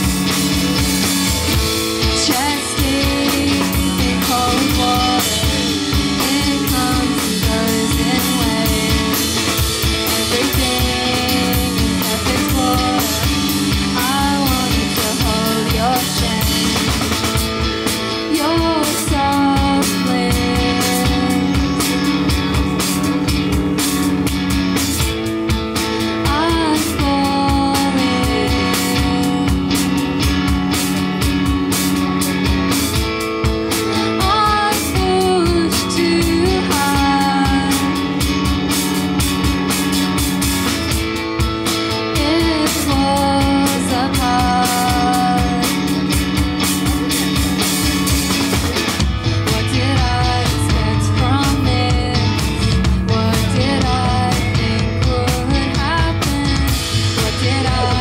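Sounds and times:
drum kit beat: 0.0s - 58.0s
electric guitar chords: 0.0s - 58.0s
woman singing: 2.0s - 22.1s, 26.0s - 30.0s, 33.8s - 38.3s, 42.0s - 46.2s, 49.3s - 58.0s.

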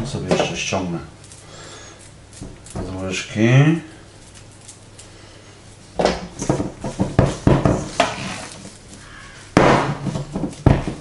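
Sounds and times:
spatula scraping dough in bowl: 7.8s - 8.7s.

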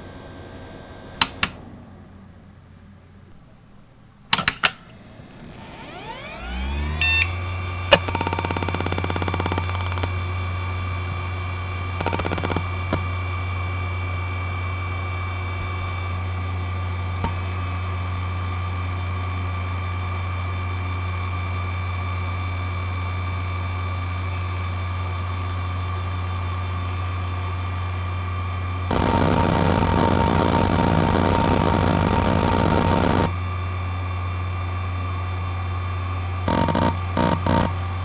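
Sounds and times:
hard drive humming and whining: 0.0s - 38.0s
hard drive seek clicks: 7.9s - 10.2s, 12.0s - 13.2s, 28.9s - 33.3s, 36.5s - 37.9s.

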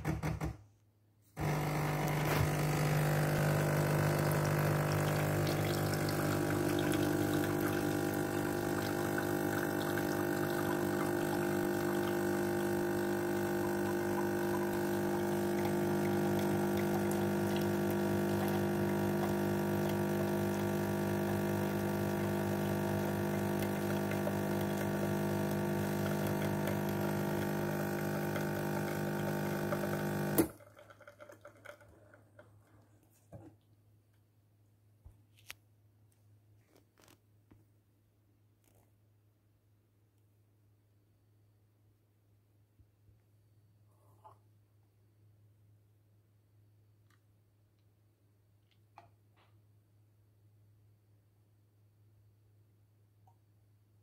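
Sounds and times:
espresso machine pump running: 1.4s - 30.6s.

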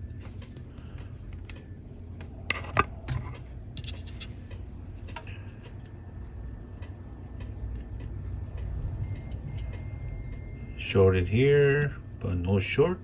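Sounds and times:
steady low hum: 0.0s - 13.0s
high continuity beep: 9.0s - 11.8s.

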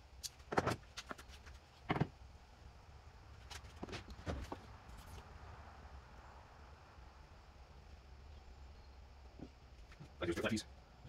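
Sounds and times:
wooden boards and clamp knocking: 0.5s - 0.8s, 1.9s - 2.1s.

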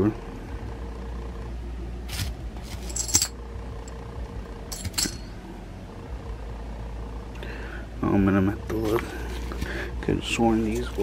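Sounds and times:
coins clinking: 2.1s - 3.4s, 4.7s - 5.4s.

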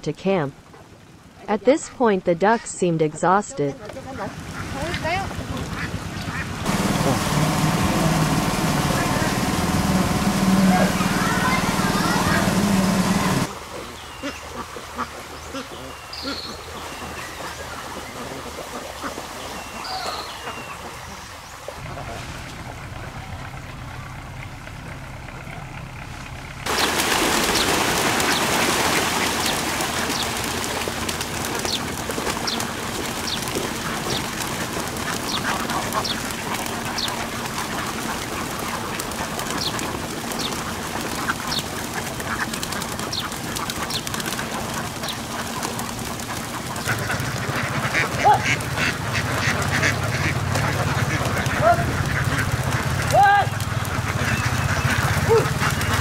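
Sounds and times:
flock of ducks quacking: 3.6s - 22.8s, 26.7s - 56.0s
low steady hum: 5.3s - 13.5s, 21.8s - 56.0s.

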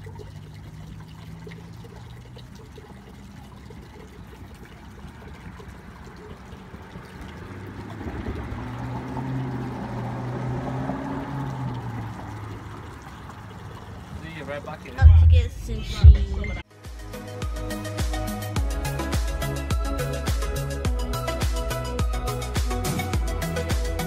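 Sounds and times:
water running into plastic bucket: 0.0s - 15.0s.

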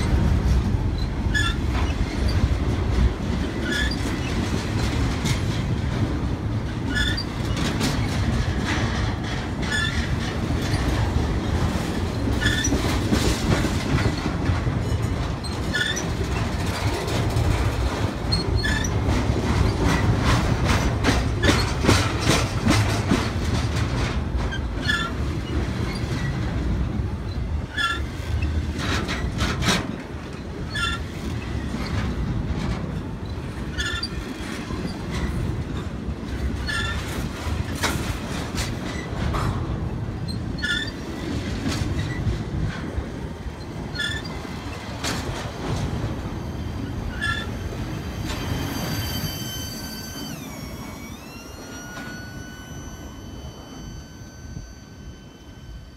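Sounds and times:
freight train cars rumbling: 0.0s - 55.9s
wheels clacking over rail joints: 0.0s - 55.9s
high-pitched wheel squeaks: 0.9s - 2.5s, 3.5s - 4.4s, 6.9s - 8.6s, 9.2s - 17.5s, 18.1s - 23.4s, 24.5s - 26.4s, 27.3s - 28.5s, 30.7s - 31.8s, 33.7s - 35.7s, 36.5s - 39.2s, 40.1s - 42.7s, 43.6s - 55.9s.

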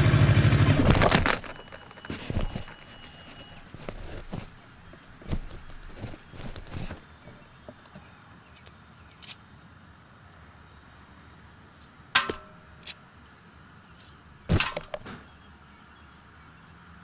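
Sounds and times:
gloves and gear rustling: 0.8s - 7.2s.

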